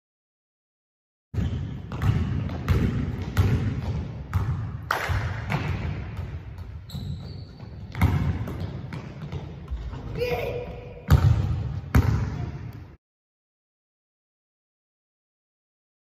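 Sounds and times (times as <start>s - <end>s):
basketball bouncing on hardwood floor: 1.4s - 10.2s, 11.1s - 12.4s.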